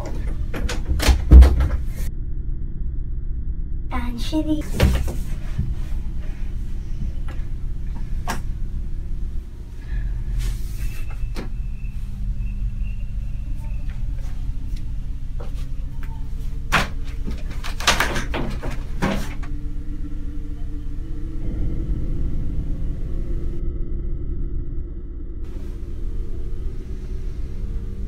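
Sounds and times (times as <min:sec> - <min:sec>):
knocks and rattles on door: 0:00.0 - 0:02.0, 0:16.7 - 0:19.5
steady low hum: 0:00.0 - 0:28.0.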